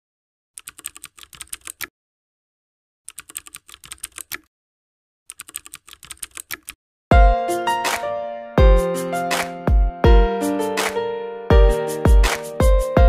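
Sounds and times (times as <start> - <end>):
rapid keyboard key clicks: 0.6 - 1.9, 3.1 - 4.5, 5.3 - 6.8.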